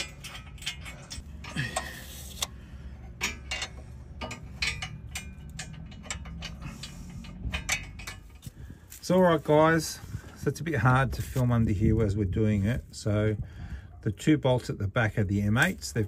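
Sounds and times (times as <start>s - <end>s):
metallic clicks of bolts: 0.0s - 8.6s
low steady hum: 0.0s - 16.0s.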